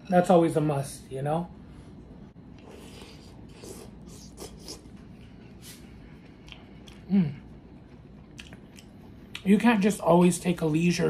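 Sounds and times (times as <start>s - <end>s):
wet eating smacks and chewing: 3.6s - 9.5s
person humming: 7.0s - 7.4s.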